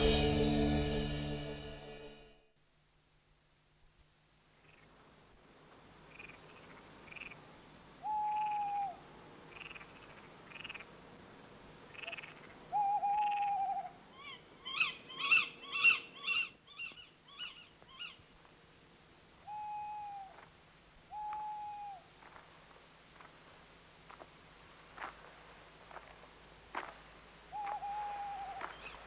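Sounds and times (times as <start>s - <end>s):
faint insect chirping: 2.8s - 29.0s
owl hooting: 8.0s - 10.8s, 11.9s - 18.2s, 19.4s - 20.5s, 21.1s - 22.2s, 27.5s - 29.0s
sharp chirping calls: 12.0s - 18.2s, 27.6s - 29.0s.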